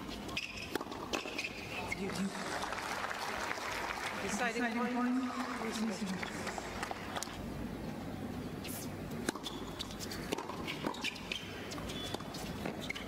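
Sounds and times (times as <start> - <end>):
tennis racquets striking ball: 0.3 - 1.6, 9.1 - 13.0.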